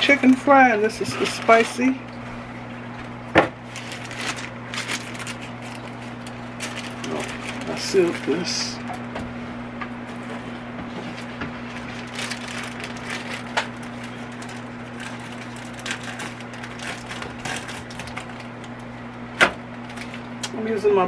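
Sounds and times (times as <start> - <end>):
plastic bag crinkling: 0.0 - 2.2, 3.6 - 8.8, 10.1 - 19.0, 19.8 - 20.4
steady low hum: 0.0 - 21.0
small crackles and clicks: 11.8 - 18.9.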